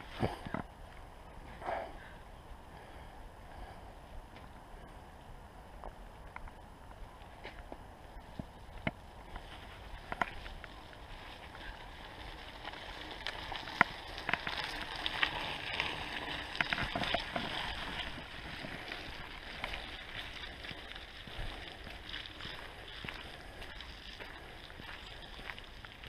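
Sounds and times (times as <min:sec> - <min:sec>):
tyres crunching on wet gravel: 0:08.9 - 0:26.0.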